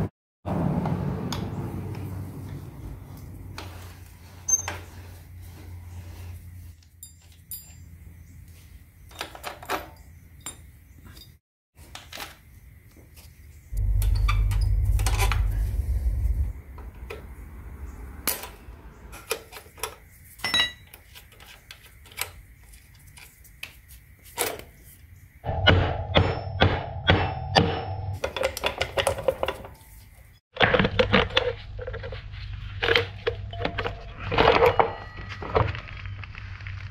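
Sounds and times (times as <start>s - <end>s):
wrenches clinking against metal: 6.8s - 8.0s
low rumble: 13.7s - 19.1s.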